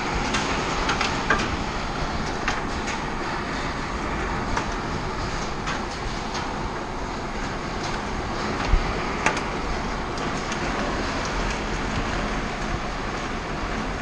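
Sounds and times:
heavy rain drumming on metal: 0.0 - 14.0.

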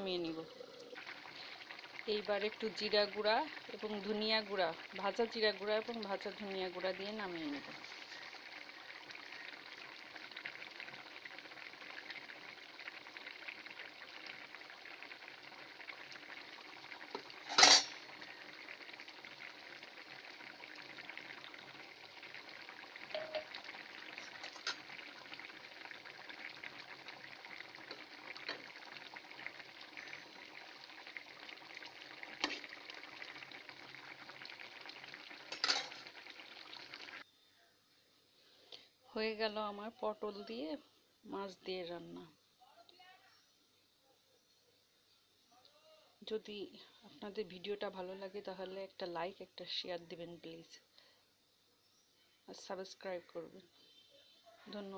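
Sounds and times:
curry bubbling and sizzling in a pan: 0.0 - 37.3.

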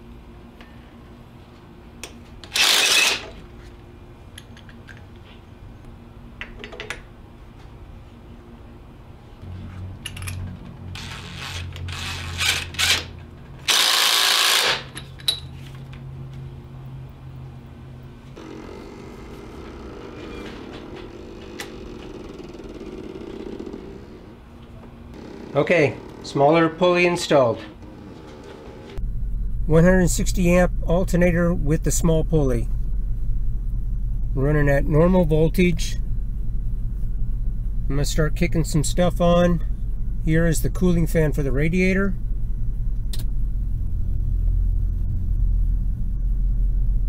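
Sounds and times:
impact driver whirring: 2.4 - 3.4, 11.0 - 15.0
actuators creaking whir: 2.4 - 3.7, 9.6 - 16.0, 18.4 - 29.0
sharp click: 43.1 - 43.3.

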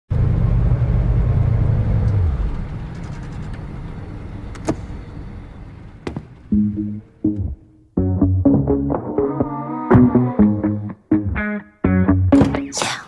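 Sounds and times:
car engine rumbling: 0.1 - 8.0.

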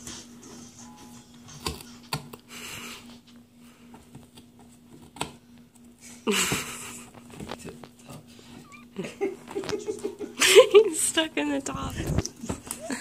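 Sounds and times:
puppy chewing cardboard: 1.4 - 8.6.

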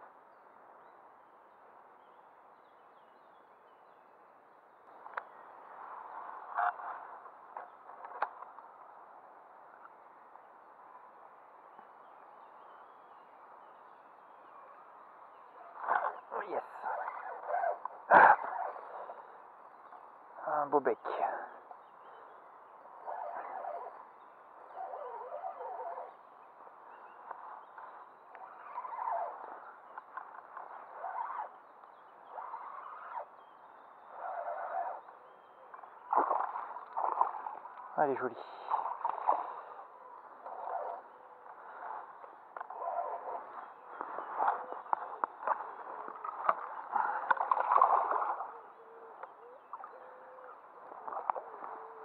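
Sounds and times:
distant bird chirps: 11.7 - 52.0.

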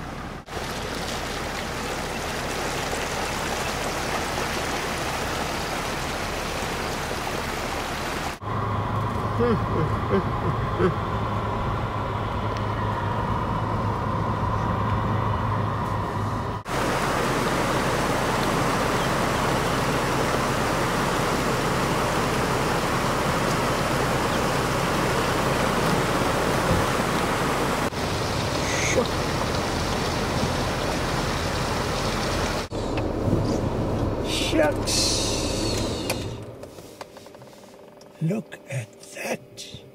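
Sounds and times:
river water rushing: 0.0 - 8.4, 16.7 - 32.7
car engine and road noise: 0.0 - 38.4.

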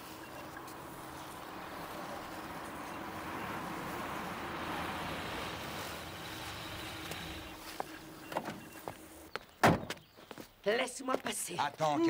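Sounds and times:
car engine running: 0.0 - 9.3.

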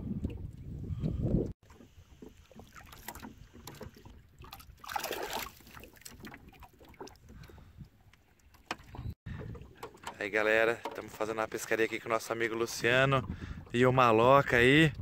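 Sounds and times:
hand splashing into water: 4.5 - 6.3.

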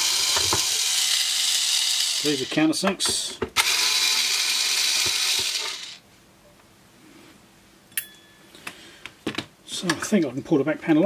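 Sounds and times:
electric screwdriver running: 0.0 - 2.7, 3.6 - 6.0.

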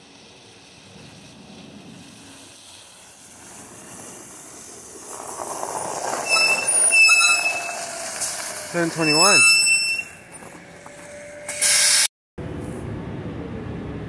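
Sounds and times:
city bus running: 0.0 - 14.0
bus brakes squealing: 4.6 - 12.1.

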